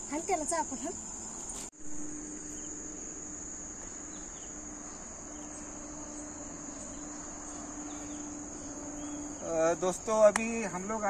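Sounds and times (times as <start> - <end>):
crickets trilling: 0.0 - 11.0.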